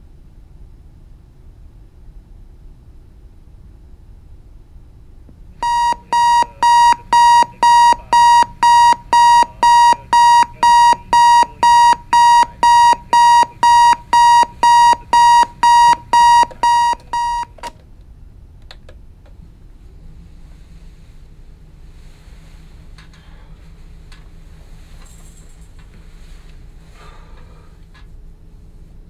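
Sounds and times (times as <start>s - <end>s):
alarm clock beeping: 5.6s - 17.6s.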